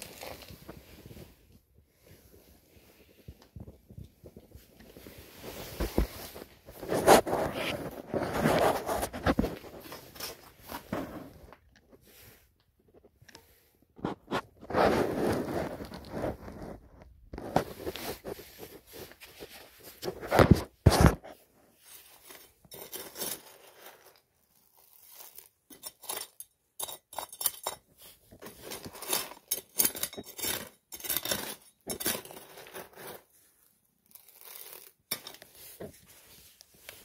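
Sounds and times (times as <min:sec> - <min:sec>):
mix poured from paper bag: 0:00.0 - 0:00.6
metal scoop scraping concrete mix: 0:25.2 - 0:33.3.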